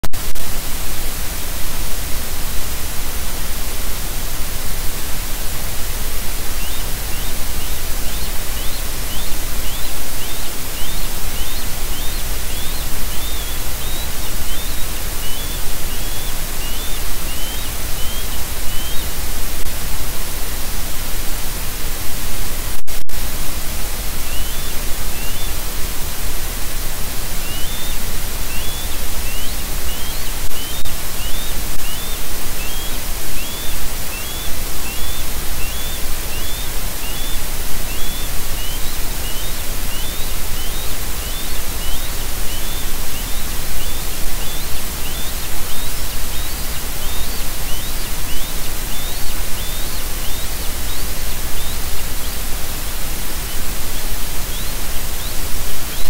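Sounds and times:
loud microphone hiss: 0:00.0 - 0:56.0
bird chirping: 0:06.0 - 0:19.3, 0:24.0 - 0:26.2, 0:27.0 - 0:56.0.

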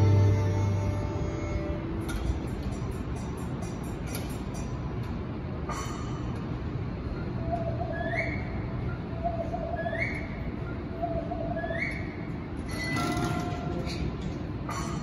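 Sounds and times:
low background rumble: 0:00.0 - 0:03.9.

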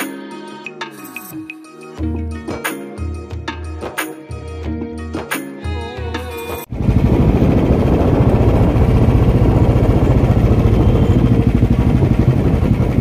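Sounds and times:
motorcycle engine running: 0:06.7 - 0:13.0.

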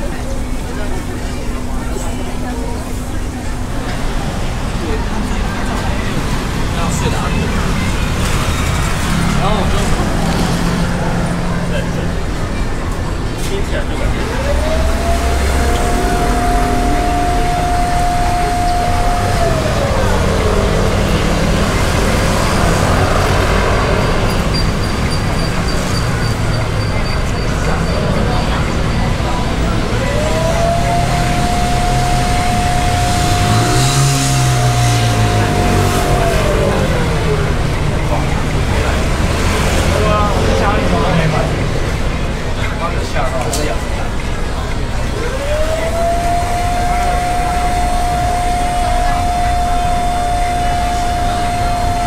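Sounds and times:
cotton candy machine whirring: 0:13.8 - 0:23.7, 0:29.8 - 0:38.2, 0:45.1 - 0:52.0
faint high pulsing tone: 0:14.2 - 0:22.8, 0:29.8 - 0:37.6, 0:45.8 - 0:52.0.

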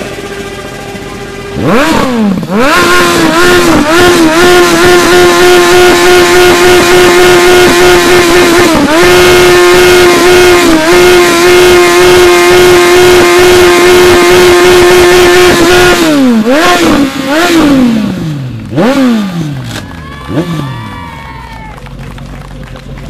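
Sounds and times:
motorcycle engine revving: 0:00.0 - 0:21.2.

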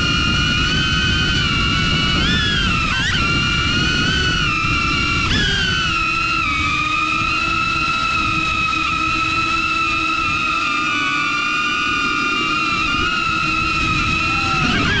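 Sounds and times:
wind buffeting microphone: 0:00.0 - 0:11.0, 0:11.6 - 0:15.0
drone propeller whine: 0:00.0 - 0:15.0.

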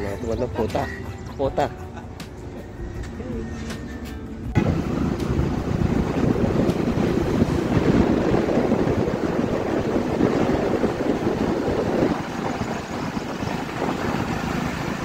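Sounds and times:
engine and road noise: 0:00.0 - 0:15.0
wind buffeting microphone: 0:04.5 - 0:15.0.

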